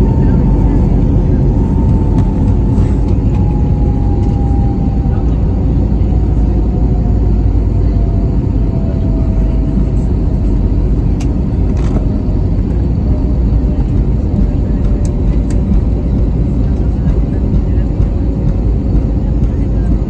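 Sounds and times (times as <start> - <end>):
deep rumble of engines and wheels: 0.0 - 20.0
faint engine whine: 0.0 - 20.0.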